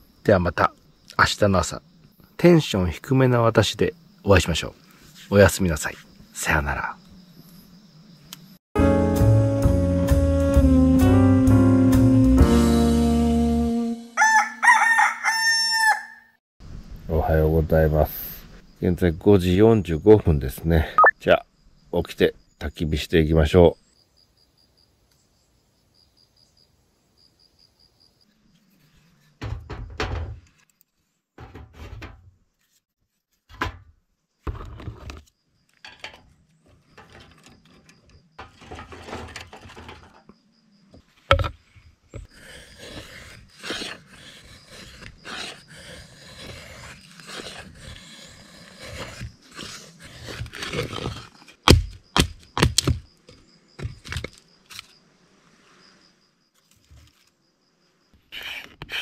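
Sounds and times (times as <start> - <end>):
faint insect chirping: 0.0 - 8.6, 16.6 - 31.4, 34.0 - 59.0
rustling and scraping: 28.3 - 33.7, 34.4 - 57.4.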